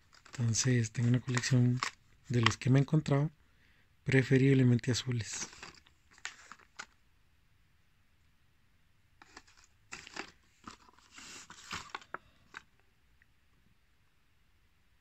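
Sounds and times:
plastic blister packs crinkling: 0.0s - 3.0s, 5.2s - 7.0s, 9.2s - 12.7s.

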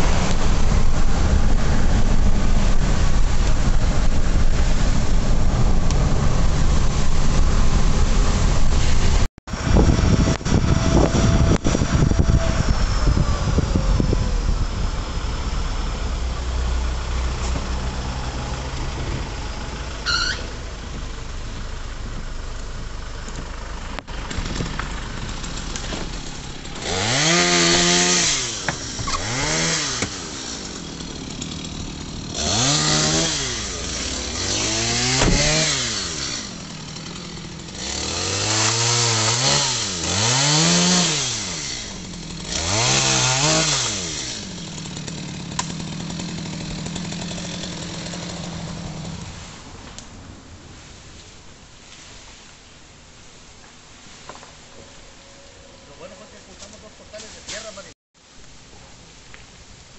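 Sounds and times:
chainsaw idling and revving: 9.6s - 20.1s, 22.9s - 49.6s.

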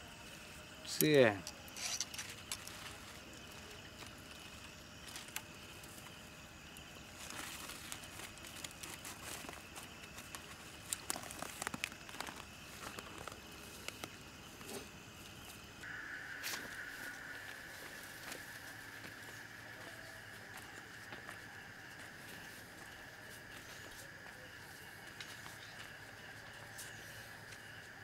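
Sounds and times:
high insect trill: 0.0s - 28.0s
plastic bag rustling: 7.2s - 14.1s
footsteps on dirt path: 15.5s - 26.7s.

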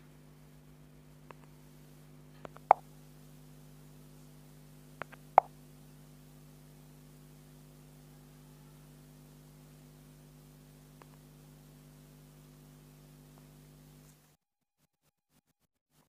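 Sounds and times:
steady low hum: 0.0s - 14.2s
faint clicks: 2.4s - 2.8s
fingertip taps on touchscreen: 2.4s - 2.8s.

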